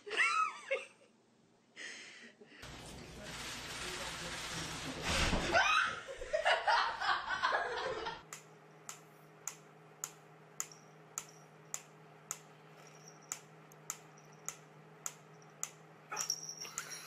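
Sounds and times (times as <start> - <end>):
faint steady hum: 5.6 - 17.0.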